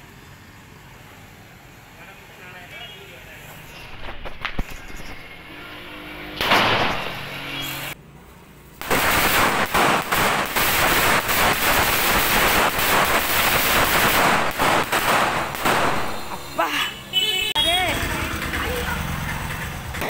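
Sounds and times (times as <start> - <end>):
firecrackers going off: 3.4 - 5.4, 6.4 - 8.0, 8.7 - 16.8
loud rushing hiss: 8.8 - 16.5.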